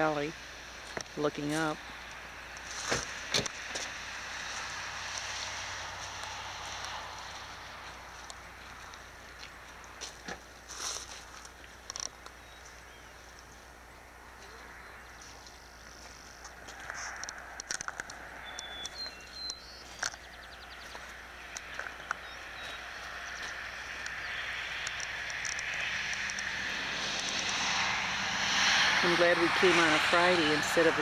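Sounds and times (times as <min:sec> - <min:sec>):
rushing noise: 0:22.5 - 0:31.0.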